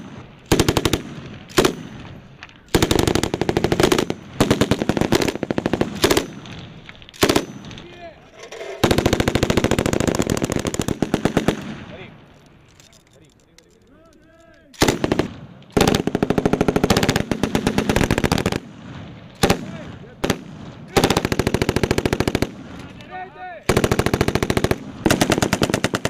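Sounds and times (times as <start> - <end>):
machine gun firing bursts: 0.0 - 2.0, 2.7 - 6.6, 7.2 - 7.8, 8.8 - 11.9, 14.8 - 18.7, 19.4 - 22.8, 23.7 - 26.0.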